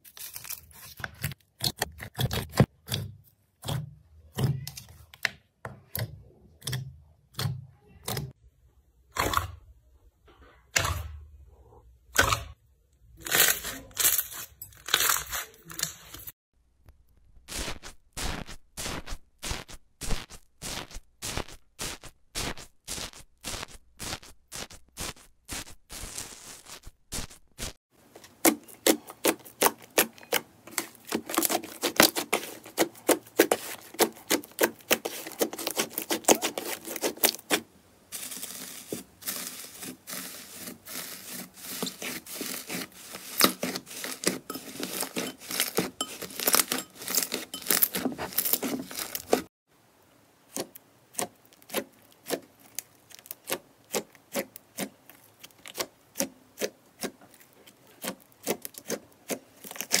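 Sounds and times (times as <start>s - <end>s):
hands kneading sticky slime: 28.3s - 49.5s, 50.5s - 60.0s.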